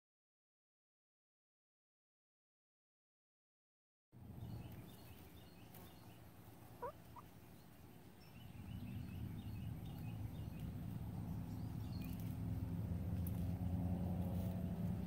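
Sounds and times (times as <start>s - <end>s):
low outdoor rumble: 4.2s - 15.0s.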